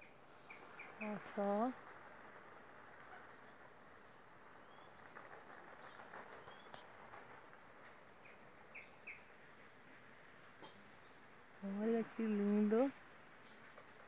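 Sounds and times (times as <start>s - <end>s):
small bird chirping: 0.0s - 9.4s
faint outdoor ambience: 0.0s - 14.0s.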